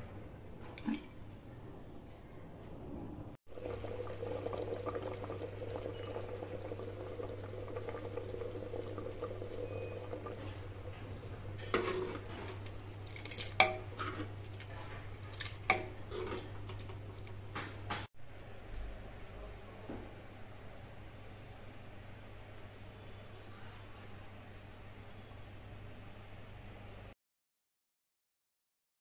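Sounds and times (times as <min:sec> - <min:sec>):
curry simmering in a pot: 0:03.5 - 0:17.4.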